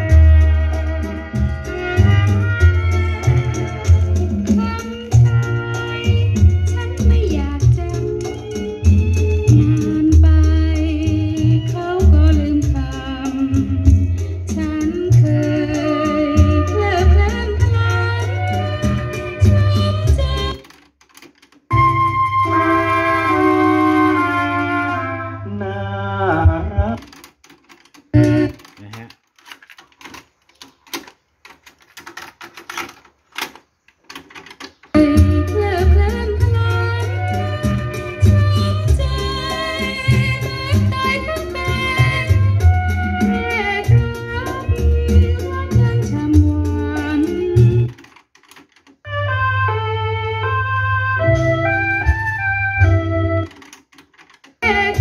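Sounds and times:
music with singing: 0:00.0 - 0:20.7, 0:34.9 - 0:48.0, 0:54.6 - 0:55.0
cassette doors opening and shutting: 0:18.8 - 0:21.8, 0:26.8 - 0:35.5, 0:47.5 - 0:49.1, 0:53.4 - 0:55.0.

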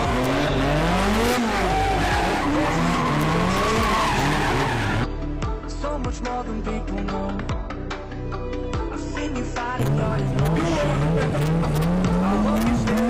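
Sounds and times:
music with a beat: 0:00.0 - 0:04.1, 0:05.1 - 0:13.0
car engine revving: 0:00.0 - 0:05.1, 0:09.8 - 0:13.0.

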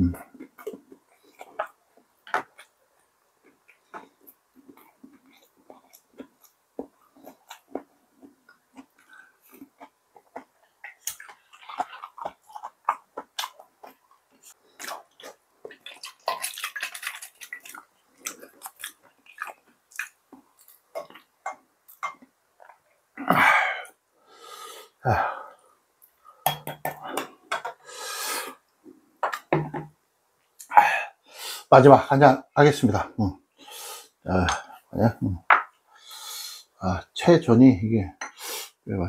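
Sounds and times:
person chewing food: 0:00.2 - 0:24.0.

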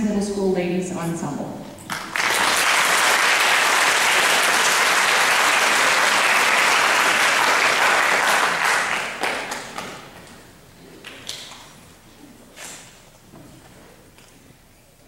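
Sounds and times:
audience applauding: 0:01.9 - 0:10.1.

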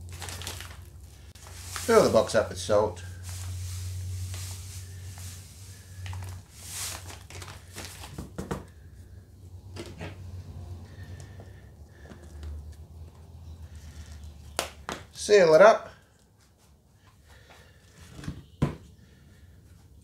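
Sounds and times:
salt pouring with rustling: 0:00.0 - 0:08.0.

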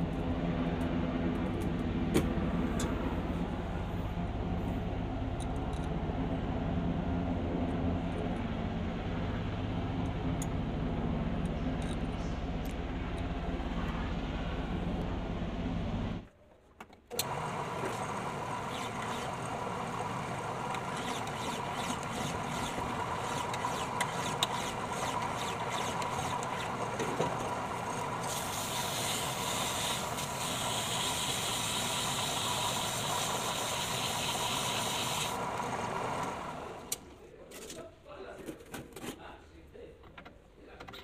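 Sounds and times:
lathe whining: 0:17.1 - 0:36.9
tool hissing against spinning disc: 0:17.4 - 0:36.7.

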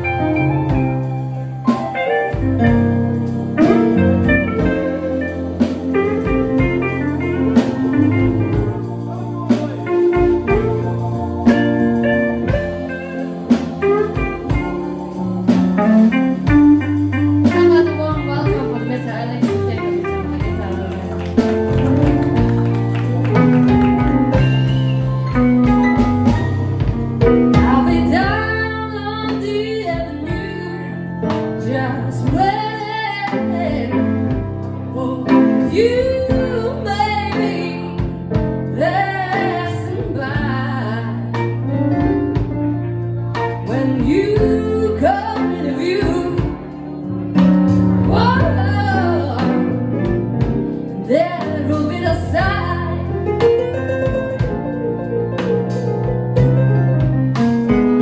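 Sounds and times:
bass line: 0:00.0 - 0:58.0
drums: 0:00.0 - 0:58.0
electric guitar: 0:00.0 - 0:58.0
organ and keyboard chords: 0:00.0 - 0:58.0
woman singing: 0:04.6 - 0:21.8, 0:27.2 - 0:41.7, 0:43.4 - 0:47.0, 0:48.0 - 0:50.1, 0:51.0 - 0:53.4.

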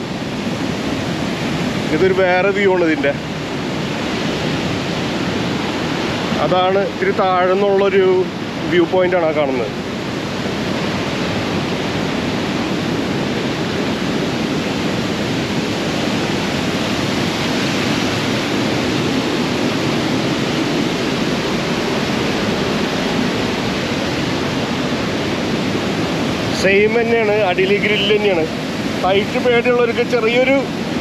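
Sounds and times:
waterfall rushing over rocks: 0:00.0 - 0:31.0.

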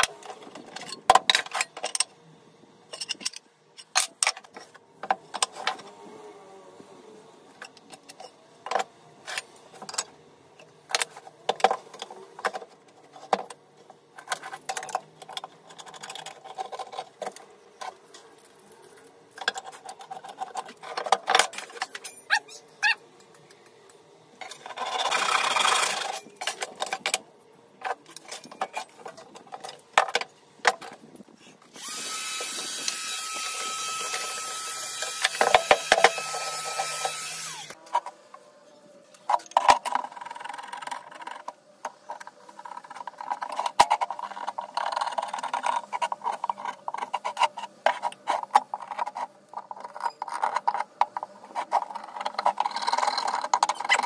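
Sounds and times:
small power tool running: 0:31.7 - 0:37.8.

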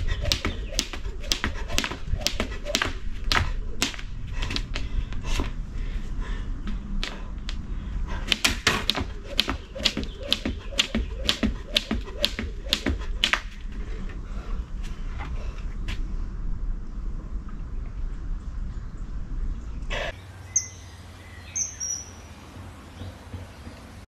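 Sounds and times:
skipping rope slapping ground: 0:00.0 - 0:05.6, 0:06.7 - 0:07.6, 0:08.2 - 0:13.8.

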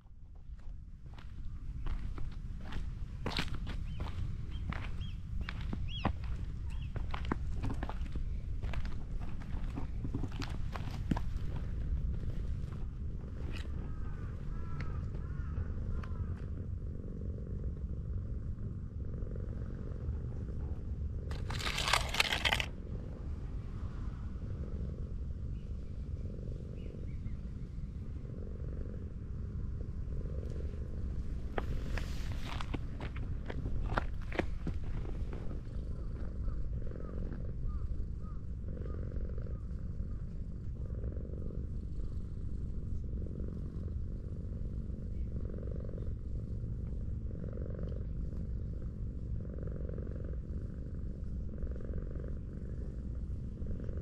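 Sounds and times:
cat purring: 0:00.0 - 0:54.0
loud rustling crackle: 0:21.3 - 0:22.7.

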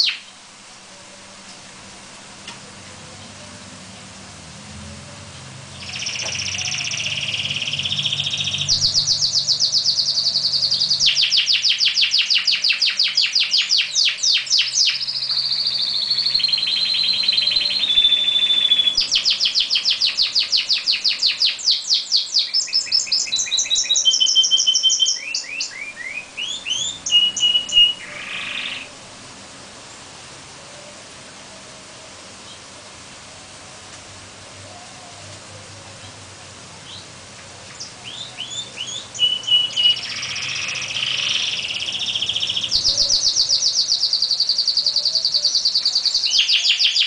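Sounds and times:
canary trilling and whistling: 0:00.0 - 0:00.2, 0:05.7 - 0:28.9, 0:38.0 - 0:47.0.

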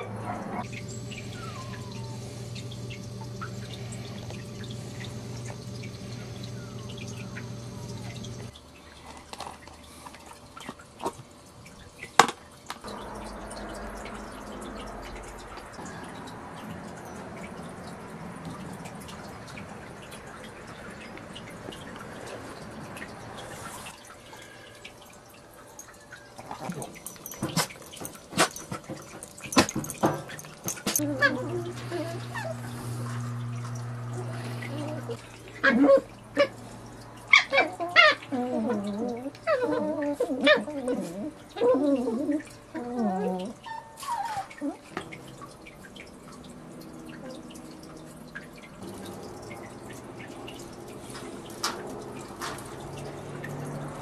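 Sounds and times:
steady low hum: 0:00.0 - 0:08.6
puppy lapping water from bowl: 0:12.8 - 0:54.0
puppy rooting among toys: 0:26.4 - 0:33.2.

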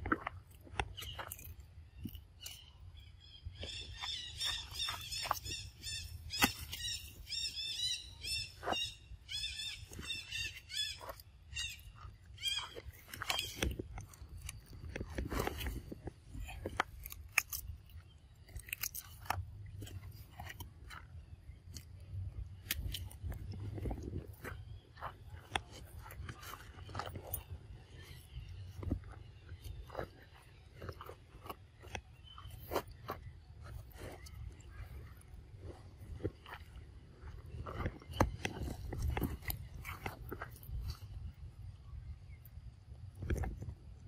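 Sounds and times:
monkeys crunching and chewing: 0:00.0 - 0:41.7
high wavering chirping calls: 0:00.9 - 0:14.7.

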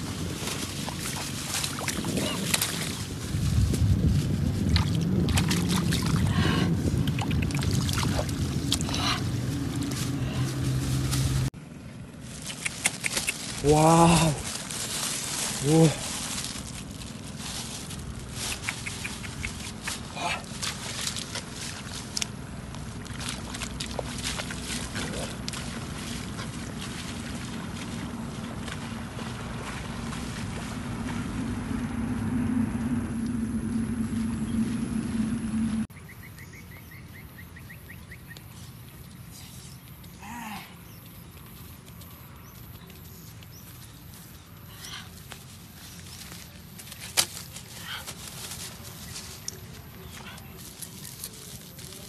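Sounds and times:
steady low rumble: 0:00.0 - 0:36.1
hands splashing in muddy puddle: 0:00.6 - 0:03.0, 0:18.5 - 0:31.2.

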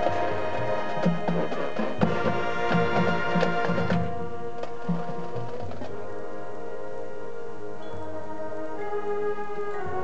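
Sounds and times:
low drum strokes: 0:00.0 - 0:05.9
marching band winds chord: 0:00.0 - 0:10.0.

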